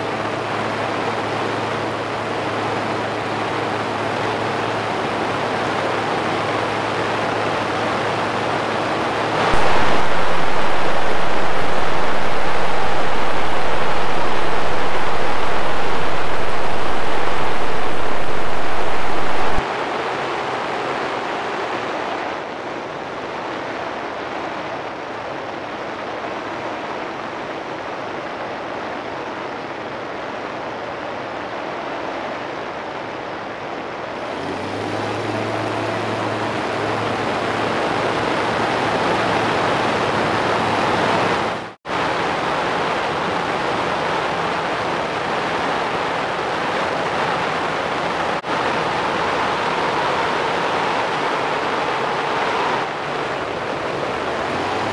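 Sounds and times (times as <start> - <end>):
aircraft engine hum: 0.0 - 19.6, 33.2 - 41.8
wind rushing over camera: 3.8 - 54.9.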